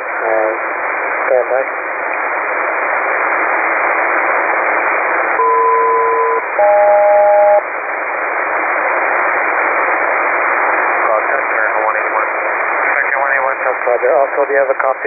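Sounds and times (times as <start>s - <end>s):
radio receiver hiss: 0.0s - 15.0s
paired radio call tones: 5.4s - 7.7s, 11.0s - 15.0s.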